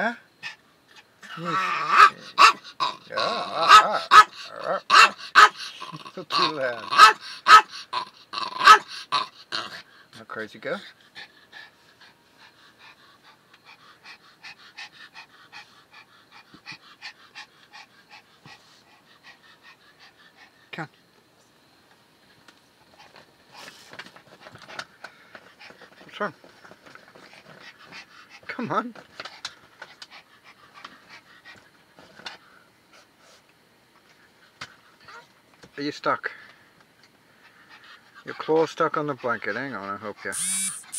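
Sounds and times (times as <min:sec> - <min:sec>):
dog panting: 0:10.7 - 0:20.8, 0:27.1 - 0:28.6, 0:29.2 - 0:33.4, 0:37.4 - 0:40.9.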